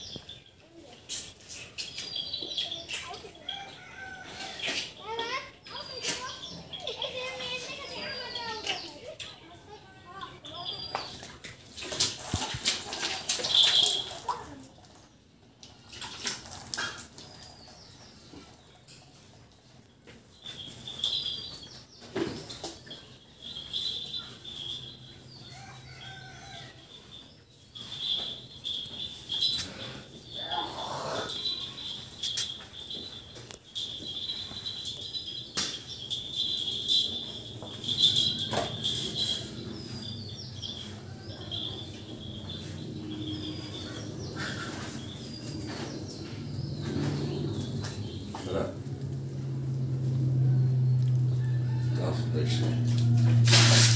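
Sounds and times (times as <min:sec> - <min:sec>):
small birds chirping: 0:00.0 - 0:11.4, 0:17.2 - 0:49.0
high insect trill: 0:27.8 - 0:45.2.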